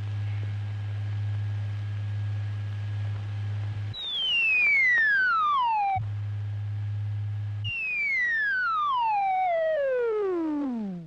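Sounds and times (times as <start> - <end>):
low steady hum: 0.0 - 11.0
falling whistling tone: 4.0 - 5.9.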